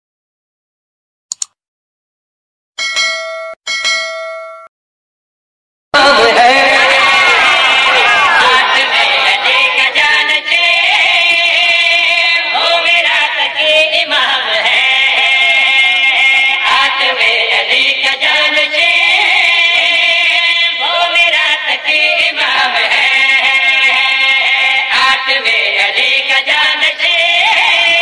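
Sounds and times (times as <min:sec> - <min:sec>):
devotional singing with held notes: 0:06.0 - 0:28.0.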